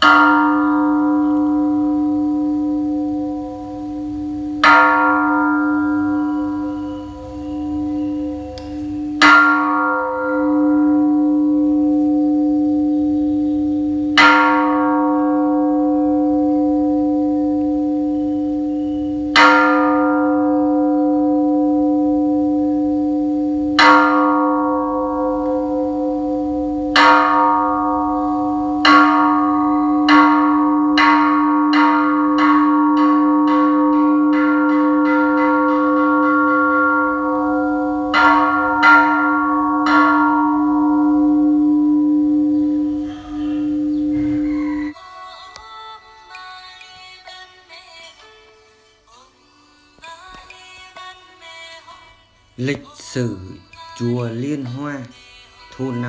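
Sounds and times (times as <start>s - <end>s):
bell ringing: 0.0s - 13.2s.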